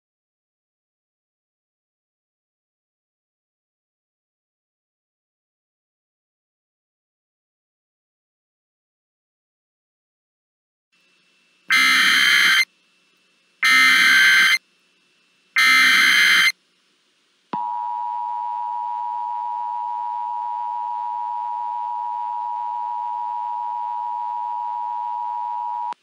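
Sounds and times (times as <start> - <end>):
steady attention tone: 11.6 - 14.6, 15.2 - 16.6, 17.6 - 26.0
digital data bursts: 11.7 - 12.7, 13.6 - 14.6, 15.6 - 16.6.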